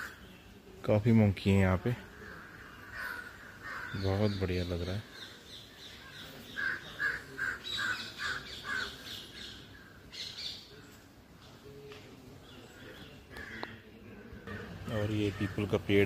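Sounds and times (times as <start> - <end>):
crow cawing: 2.1 - 4.4, 6.5 - 9.0, 13.3 - 13.8, 14.4 - 15.8.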